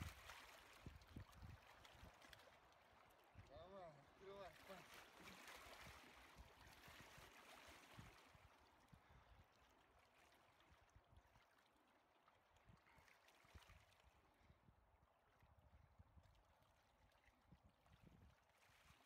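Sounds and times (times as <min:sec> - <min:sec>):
river water lapping on rocks: 0:00.0 - 0:14.4.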